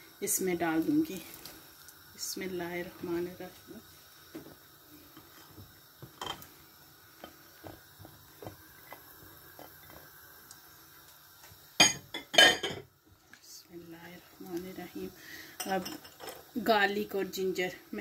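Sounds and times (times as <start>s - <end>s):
cookware clinking and knocking: 11.8s - 12.9s.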